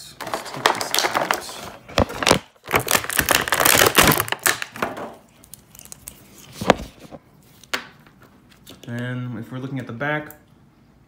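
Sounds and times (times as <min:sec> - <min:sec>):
plastic packaging crinkling: 0:00.2 - 0:07.7.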